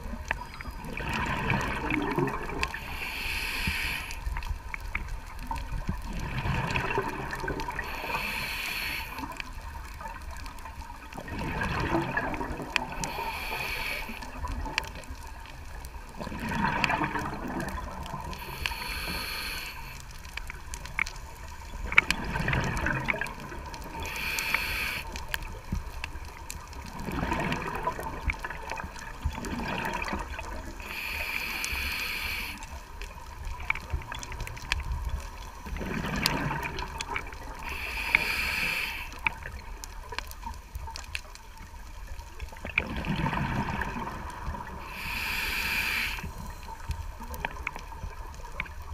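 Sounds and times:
bubbling exhale: 0.9 - 4.3, 6.1 - 9.4, 16.2 - 20.0, 35.6 - 39.5, 42.6 - 46.6
regulator hissing inhale: 2.7 - 4.4, 7.8 - 9.4, 12.9 - 14.5, 18.3 - 20.3, 23.9 - 25.2, 30.8 - 32.9, 37.5 - 39.4, 44.8 - 46.9.

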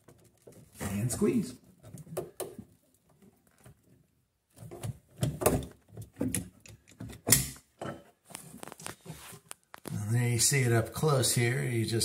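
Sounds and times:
crimping tool clicks and clunks: 4.8 - 8.0.

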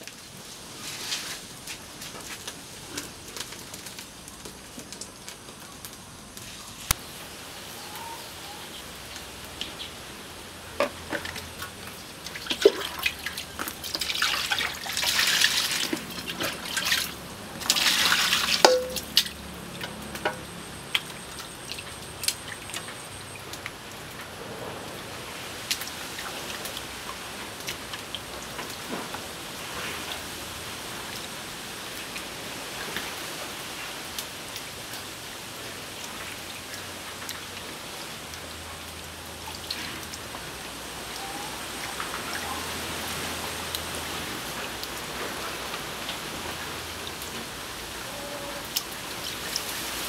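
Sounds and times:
water pouring into basin: 11.2 - 19.3.

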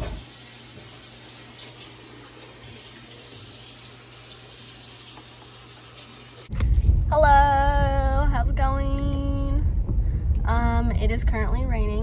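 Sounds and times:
low hum: 6.5 - 12.0.

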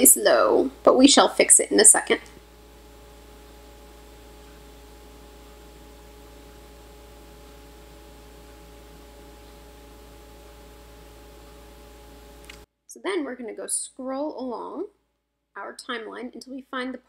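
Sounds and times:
electrical hum: 0.0 - 12.7
steady hiss: 0.0 - 12.7
faint constant tones: 0.0 - 13.3.

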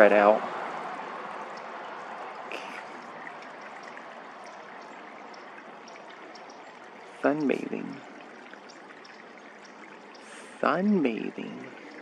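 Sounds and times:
flowing water rushing: 0.0 - 12.0
faint high ticks: 1.5 - 10.4.

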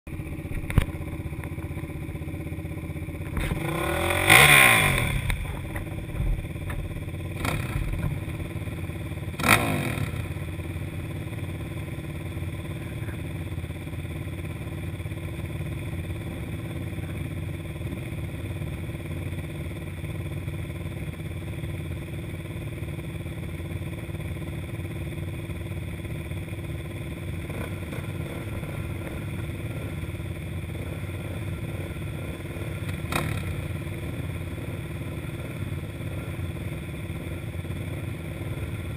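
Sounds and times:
quad engine idling and revving: 0.1 - 38.9.

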